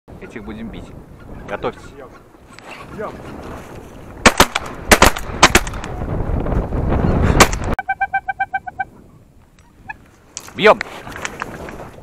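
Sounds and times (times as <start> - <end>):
shotgun shots: 4.2 - 5.9.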